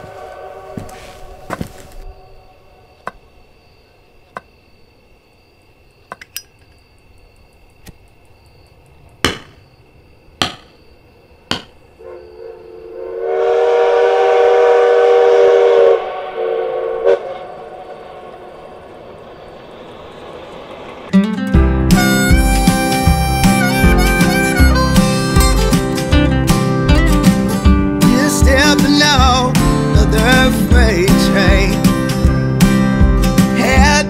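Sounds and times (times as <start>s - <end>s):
steam train whistle: 0.0s - 1.9s, 12.0s - 18.0s, 21.9s - 25.4s
sharp knocks: 9.2s - 9.7s, 10.4s - 10.8s, 11.5s - 11.8s.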